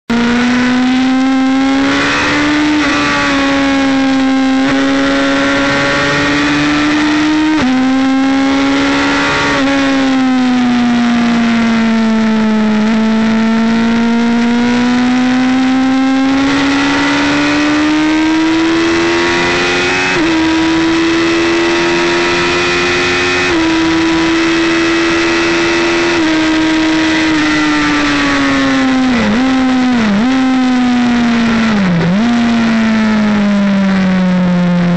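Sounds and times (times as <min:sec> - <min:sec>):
motorcycle engine under hard throttle: 0:00.0 - 0:34.9.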